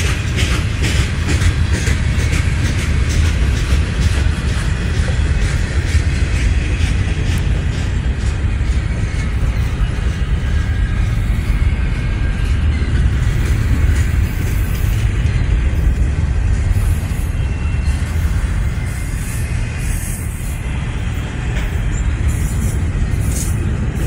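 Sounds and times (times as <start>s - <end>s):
freight train rumbling past: 0.0s - 24.0s.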